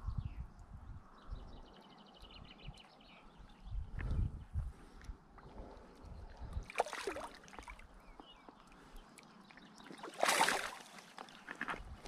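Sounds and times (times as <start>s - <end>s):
fish thrashing and splashing water: 6.7s - 7.8s, 9.8s - 11.6s.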